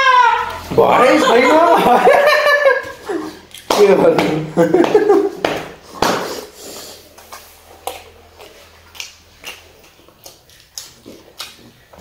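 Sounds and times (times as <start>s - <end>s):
chewing smacks: 7.0s - 12.0s.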